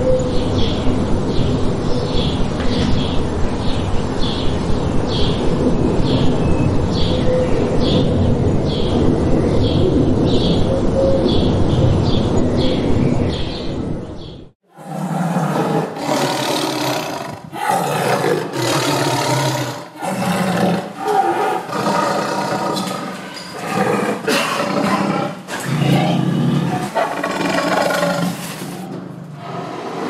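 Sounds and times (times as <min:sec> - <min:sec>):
big cat roaring: 0:14.8 - 0:30.0.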